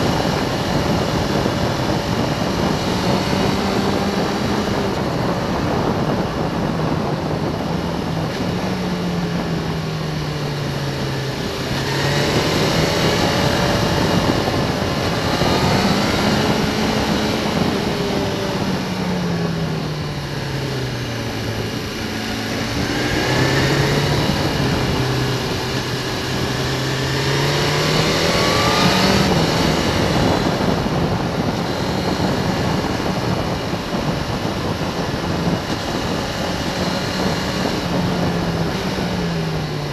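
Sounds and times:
motorcycle engine accelerating: 0:00.0 - 0:39.9
wind rush over microphone: 0:00.0 - 0:39.9.

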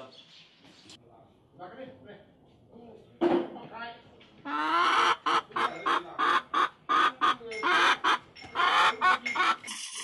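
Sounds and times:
hens clucking: 0:04.4 - 0:09.7.

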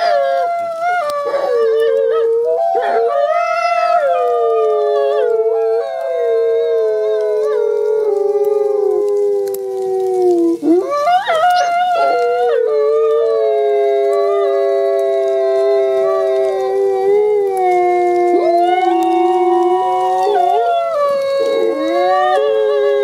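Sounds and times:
wolves howling: 0:00.0 - 0:23.0.

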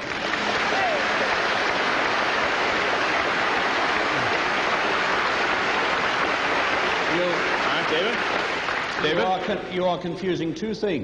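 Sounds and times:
large audience applauding: 0:00.0 - 0:09.5.

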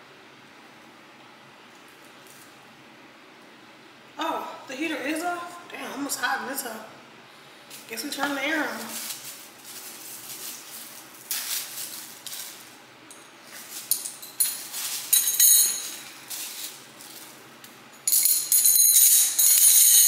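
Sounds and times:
metal straws jingling: 0:08.7 - 0:17.4, 0:18.0 - 0:20.0.

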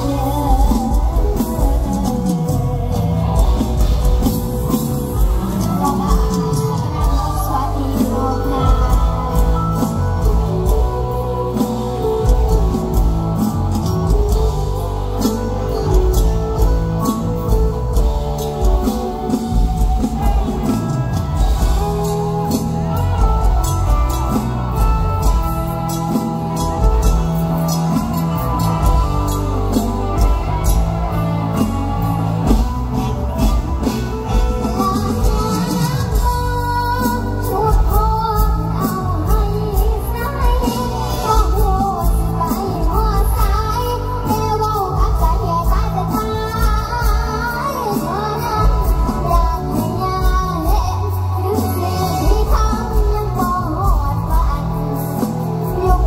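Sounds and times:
live band with drums and bass: 0:00.0 - 0:56.0
girl singing into microphone: 0:05.2 - 0:13.1, 0:33.0 - 0:56.0.

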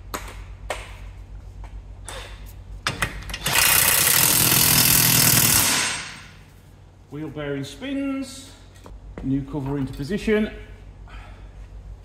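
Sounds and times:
impact wrench hammering: 0:02.8 - 0:06.4.

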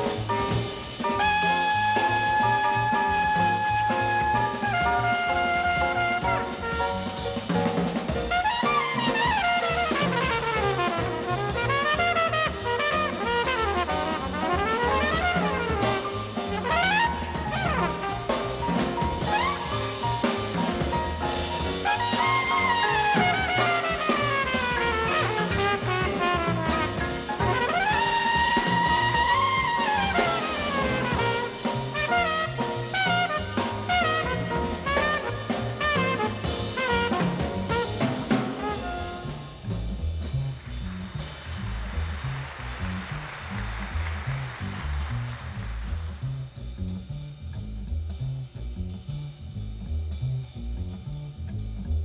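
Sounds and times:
big band jazz: 0:00.0 - 0:52.0
flugelhorn solo: 0:01.1 - 0:07.2, 0:08.3 - 0:20.0, 0:21.8 - 0:39.6.

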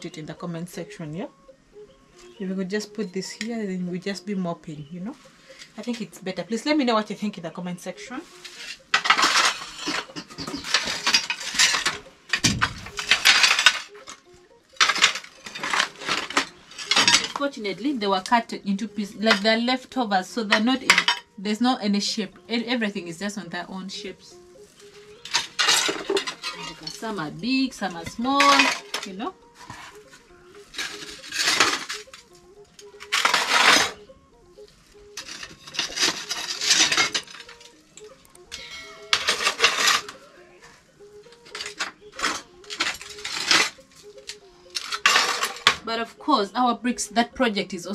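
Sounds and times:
ceramic tile pieces clattering: 0:08.5 - 0:14.2, 0:14.8 - 0:17.4, 0:20.5 - 0:21.3, 0:25.2 - 0:27.0, 0:28.0 - 0:29.1, 0:30.8 - 0:32.2, 0:35.2 - 0:38.5, 0:39.1 - 0:40.2, 0:44.8 - 0:45.8.

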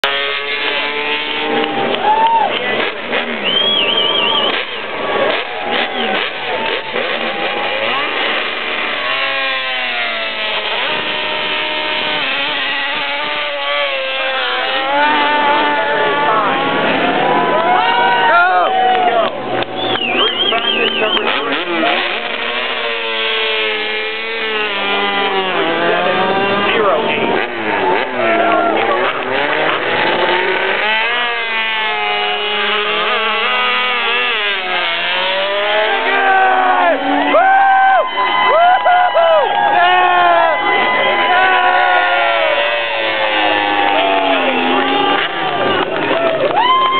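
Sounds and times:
racing motorcycles revving past: 0:04.3 - 0:17.5, 0:20.8 - 0:37.3.

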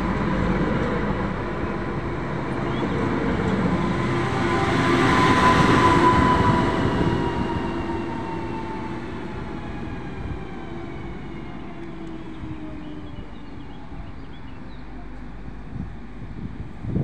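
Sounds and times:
low train rumble: 0:00.0 - 0:17.0
train motor whine: 0:01.7 - 0:14.0.

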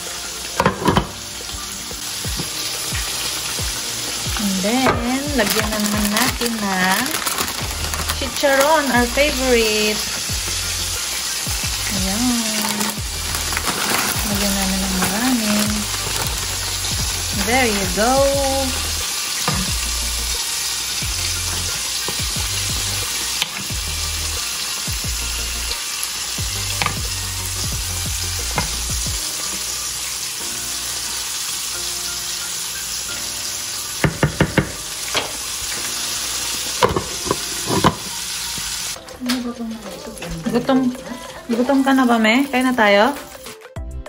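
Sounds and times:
fish frying in oil: 0:00.0 - 0:43.5
wooden spoon stirring pot: 0:04.3 - 0:09.0.

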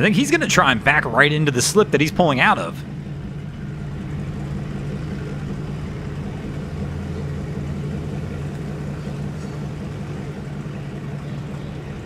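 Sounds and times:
boat engine idling: 0:00.0 - 0:12.0.

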